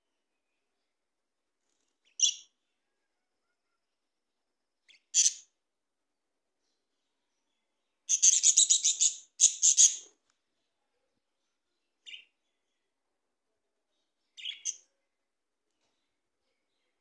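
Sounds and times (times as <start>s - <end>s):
budgerigars chirping: 4.9s - 5.4s, 8.1s - 10.0s.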